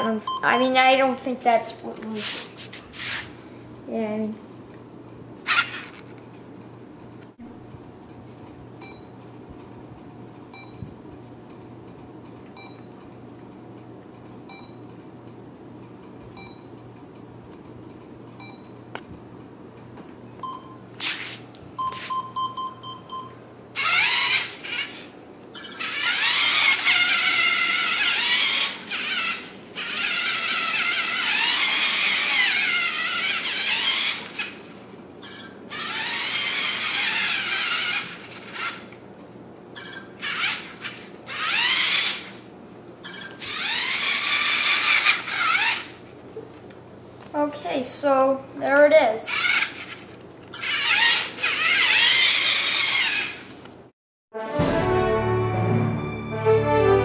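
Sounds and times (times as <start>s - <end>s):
short electronic beeps: 0.0s - 0.7s, 21.8s - 23.4s
toy car motors whining: 5.4s - 6.1s, 23.8s - 39.0s, 40.2s - 42.4s, 43.1s - 46.0s, 49.2s - 53.6s.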